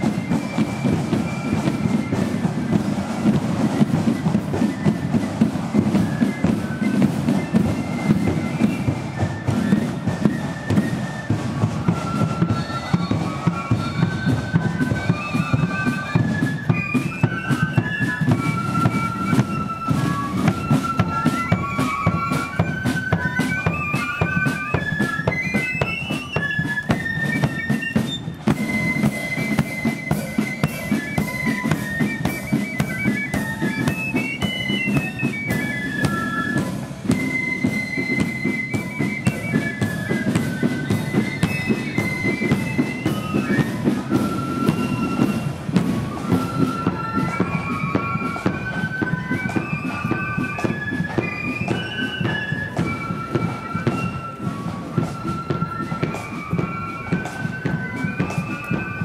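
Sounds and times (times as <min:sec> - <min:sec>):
cymbals: 0:00.0 - 0:59.0
flute melody: 0:00.0 - 0:59.0
side drums: 0:00.0 - 0:59.0.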